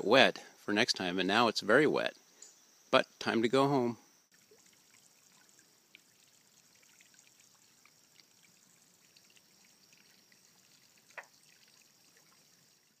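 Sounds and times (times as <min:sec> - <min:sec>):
water trickling and dripping: 0:04.3 - 0:13.0
tiny ticks: 0:11.1 - 0:11.4.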